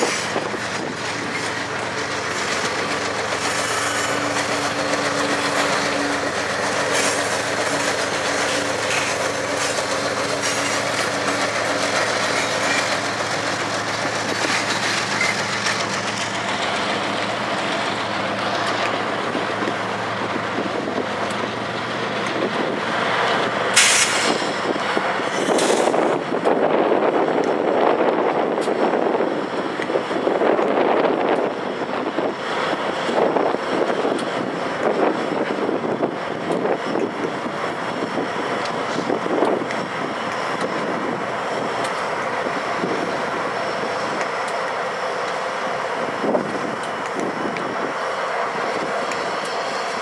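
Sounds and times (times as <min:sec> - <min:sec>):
diesel locomotive engine hum: 0:00.0 - 0:50.0
train wheels rumbling on rails: 0:00.0 - 0:50.0
brief air hiss: 0:23.8 - 0:24.6.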